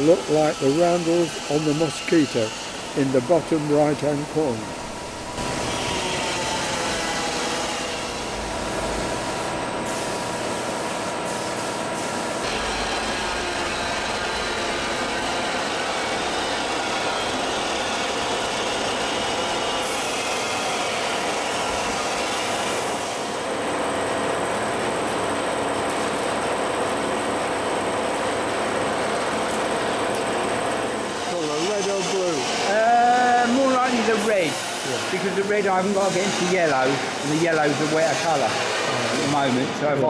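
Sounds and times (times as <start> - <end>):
air compressor running: 0.0 - 40.0
paint spray gun hissing: 9.2 - 13.0.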